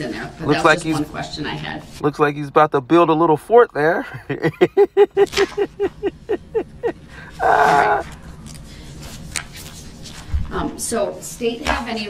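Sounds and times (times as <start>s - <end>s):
person laughing: 4.1s - 8.1s.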